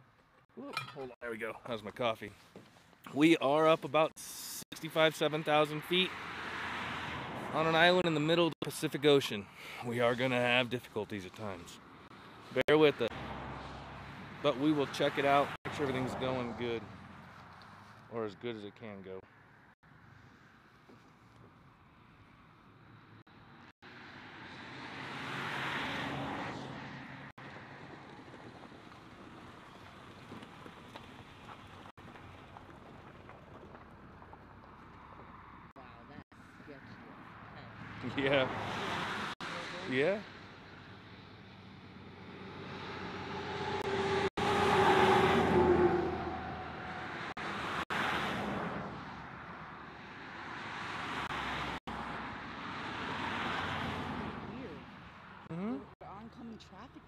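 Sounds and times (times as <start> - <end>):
vehicle passing by: 5.2 - 8.4, 11.3 - 18.3, 23.0 - 35.7, 36.4 - 55.5.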